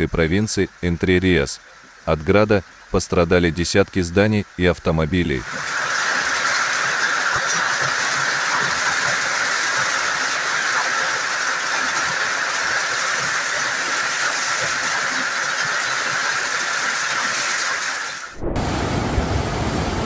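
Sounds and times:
heavy hail pelting ground: 5.4 - 18.3.

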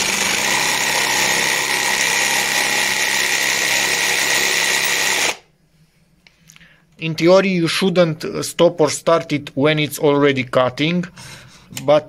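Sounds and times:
jigsaw sawing wood: 0.0 - 5.4.

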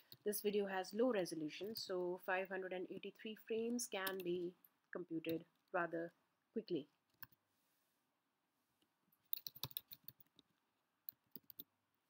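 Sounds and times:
faint keyboard typing: 1.5 - 2.2, 4.0 - 4.5, 7.0 - 7.4, 8.8 - 11.8.

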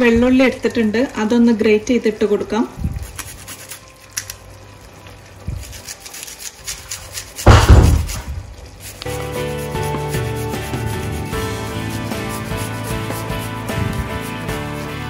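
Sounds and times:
background music: 0.7 - 15.0
garlic scraping on metal grater: 3.0 - 3.9, 5.6 - 14.8
loud thump: 7.5 - 8.4.

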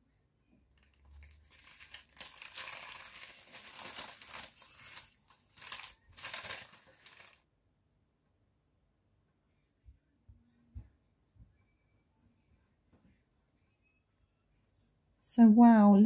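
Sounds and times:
paper packaging crinkling: 0.8 - 7.4.

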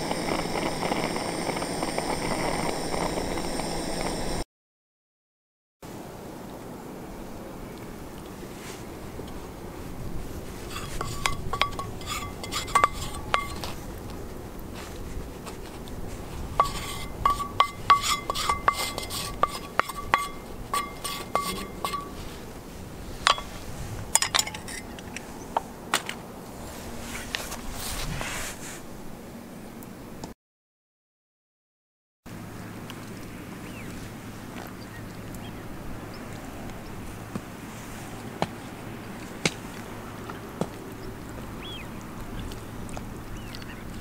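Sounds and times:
spatula clinking on metal plate: 10.7 - 13.7, 16.6 - 22.3, 23.2 - 23.6, 24.2 - 24.9.

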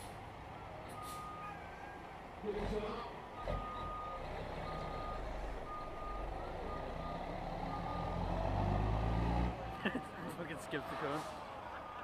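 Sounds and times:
truck backup alarm beeping: 0.9 - 1.6, 3.3 - 8.9.

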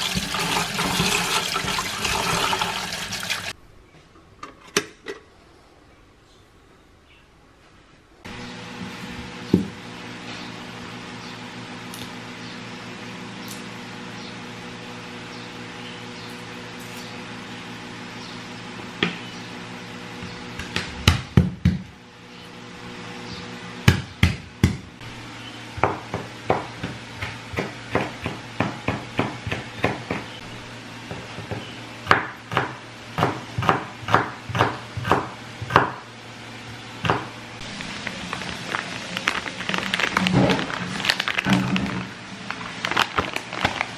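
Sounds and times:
knife chopping on wooden board: 25.8 - 30.3, 31.1 - 36.0.

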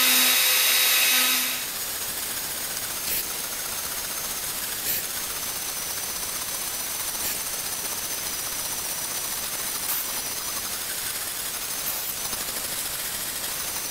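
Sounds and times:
router spindle whirring: 0.0 - 6.2.

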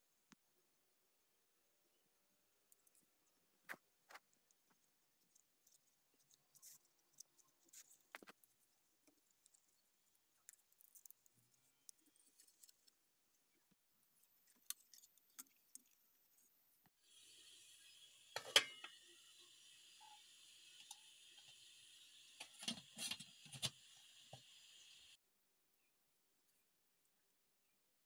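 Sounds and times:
steady hiss: 17.0 - 25.2.

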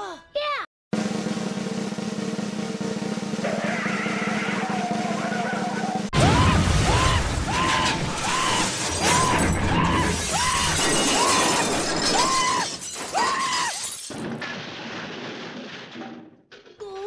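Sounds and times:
rising and falling whoop: 3.5 - 13.8
cartoon smashing clatter: 6.2 - 17.0.

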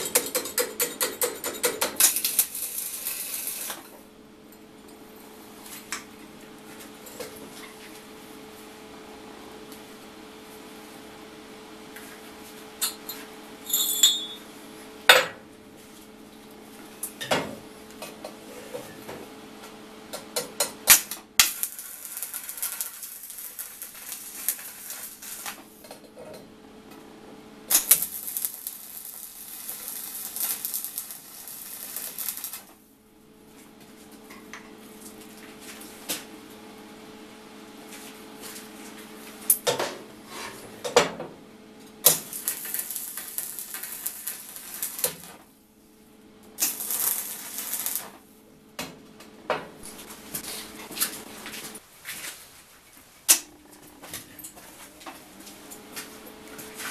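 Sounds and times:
arc welding crackling and sizzling: 0.0 - 4.1, 20.2 - 25.9, 27.6 - 32.9, 42.0 - 48.3, 49.2 - 56.9
steady hum: 1.4 - 52.0, 52.6 - 56.9
steel parts clanking on table: 13.7 - 14.4.

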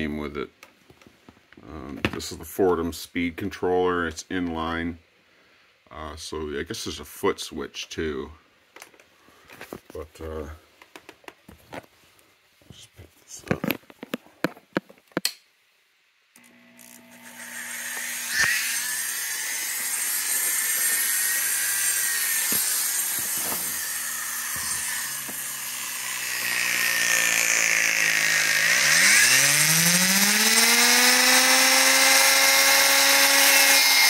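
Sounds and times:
motor whining: 16.4 - 34.0.

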